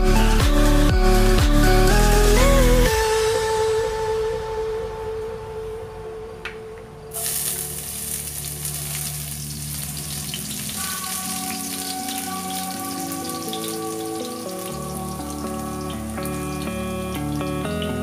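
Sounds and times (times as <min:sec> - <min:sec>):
garlic sizzling in hot oil: 0:07.1 - 0:18.0.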